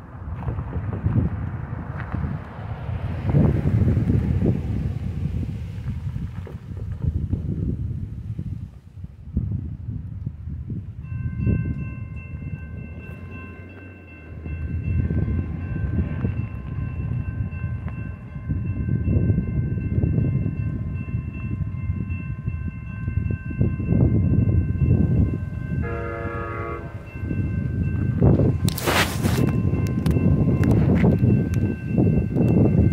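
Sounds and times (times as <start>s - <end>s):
gusty low rumble: 0.0s - 32.9s
railroad crossing bell ringing: 10.9s - 32.9s
train horn: 25.5s - 27.3s.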